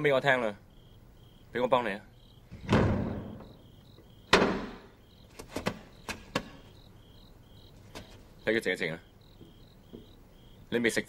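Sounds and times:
crickets chirping: 0.0 - 11.0
heavy thuds against wooden door: 2.5 - 5.0.

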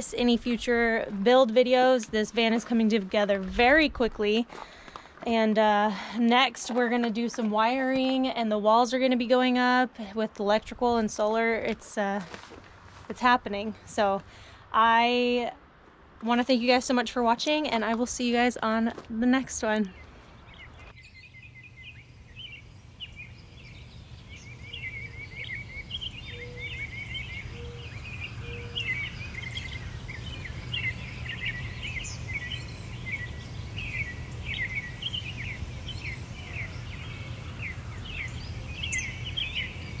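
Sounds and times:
low background hum: 0.0 - 40.0
small birds chirping and twittering: 19.8 - 40.0.

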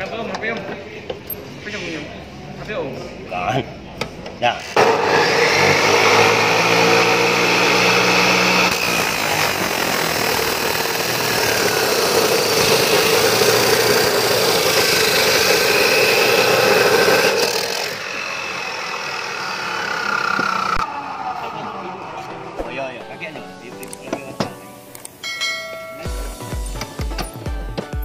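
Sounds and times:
cut-off saw grinding metal: 4.6 - 22.3.

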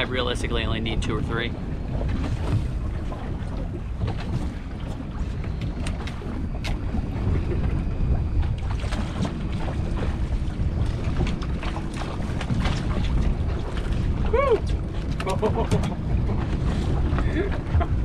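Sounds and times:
water lapping against boat hull: 0.0 - 18.0
wind rumbling on microphone: 0.0 - 18.0.

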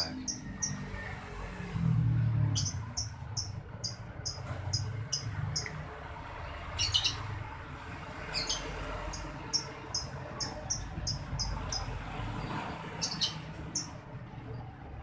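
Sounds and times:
rhythmic high chirping: 2.6 - 5.7, 9.1 - 11.9.

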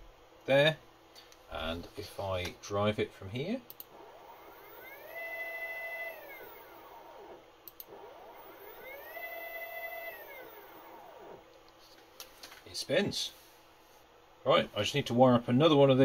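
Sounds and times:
stepper motor whine: 3.8 - 11.6.

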